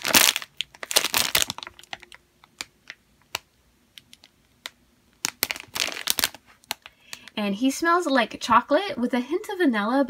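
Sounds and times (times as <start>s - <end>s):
plastic bag crinkling: 0.0s - 3.4s, 4.0s - 7.4s.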